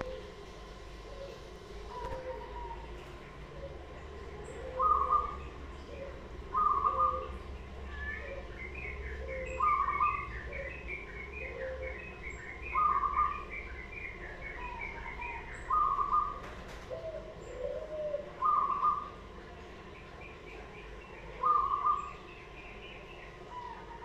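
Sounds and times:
dove cooing: 0.0s - 13.5s, 14.6s - 19.2s, 21.3s - 22.2s.

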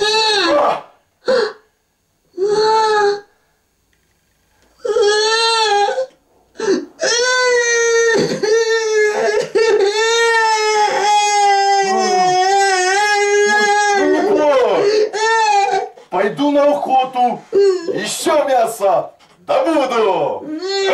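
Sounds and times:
loud wailing cry: 0.0s - 1.5s, 4.8s - 18.4s, 20.3s - 20.9s.

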